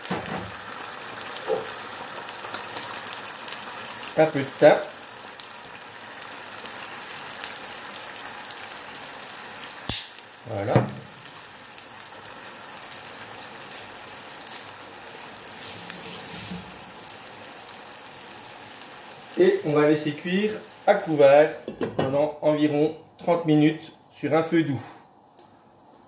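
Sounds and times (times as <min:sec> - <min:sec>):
sizzling in a hot pan: 0:00.0 - 0:22.8.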